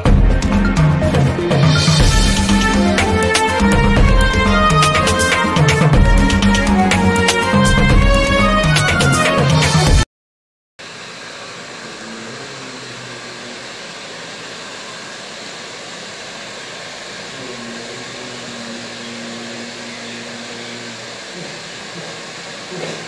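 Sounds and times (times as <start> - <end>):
small fan whirring: 10.8 - 23.0.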